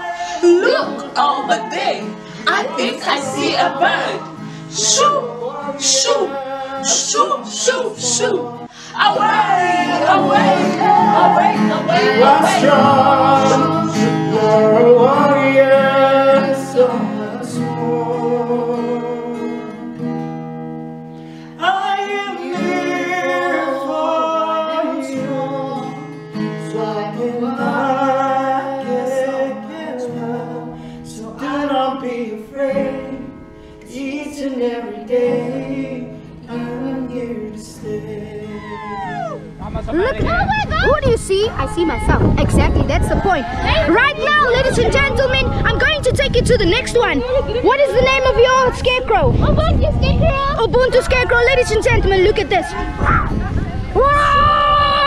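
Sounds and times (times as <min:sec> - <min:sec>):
woman singing: 0:00.0 - 0:15.2
voices singing together: 0:00.0 - 0:20.0, 0:21.6 - 0:39.6, 0:42.1 - 0:46.2
strummed acoustic guitar: 0:00.0 - 0:54.0.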